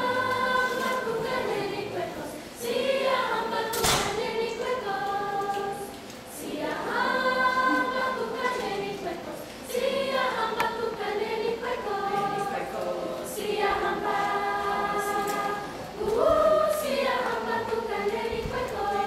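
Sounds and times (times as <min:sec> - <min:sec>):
children's chorus singing: 0:00.0 - 0:19.0.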